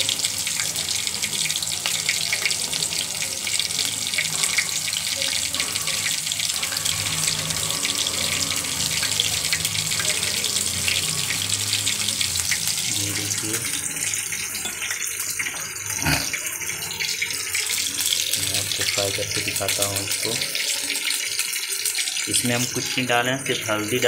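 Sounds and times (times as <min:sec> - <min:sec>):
fish sizzling in hot oil: 0:00.0 - 0:24.0.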